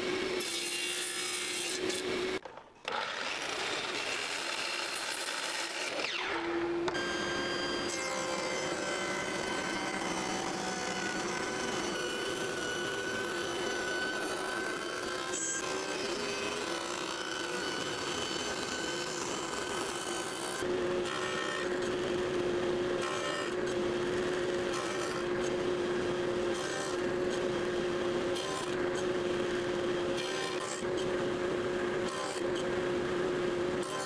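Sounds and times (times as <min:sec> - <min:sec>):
table saw humming: 0:00.0 - 0:34.0
saw blade cutting wood: 0:00.3 - 0:22.2, 0:32.0 - 0:32.7.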